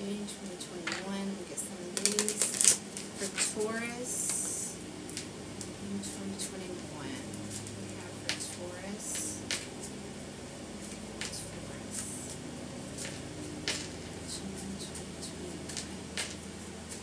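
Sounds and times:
cards being shuffled: 2.0 - 3.4.

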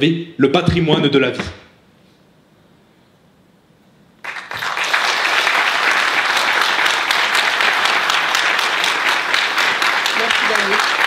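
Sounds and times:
crowd applauding loudly: 4.2 - 11.0.

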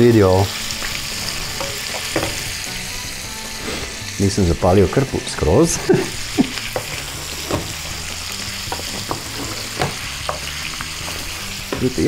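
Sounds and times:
meat sizzling in a frying pan: 0.0 - 12.0
wooden spoon scraping a pan: 6.6 - 12.0.

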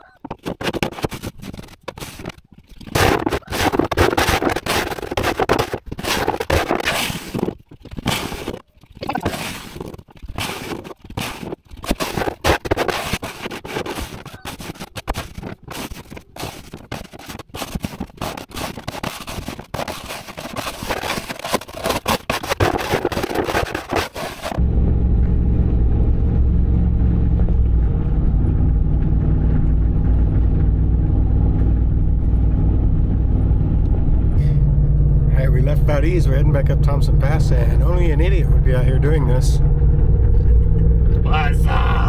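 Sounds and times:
shovel scraping snow on deck: 2.9 - 8.6, 9.2 - 24.6.

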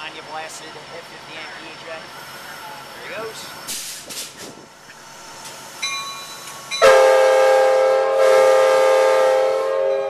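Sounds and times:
locomotive air horn blast: 6.8 - 10.0.

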